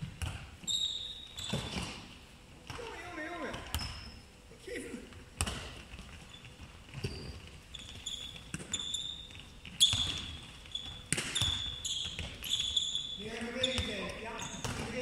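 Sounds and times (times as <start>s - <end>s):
shoes squeaking on court: 0.0s - 4.3s, 5.4s - 15.0s.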